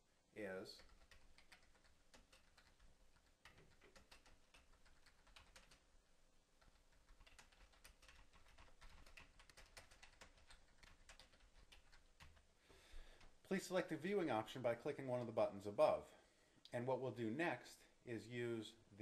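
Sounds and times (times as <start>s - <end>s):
faint keyboard typing: 0.7s - 13.4s.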